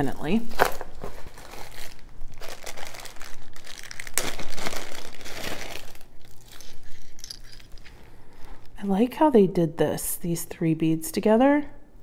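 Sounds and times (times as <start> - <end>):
plastic bag crinkling: 0.3 - 8.8.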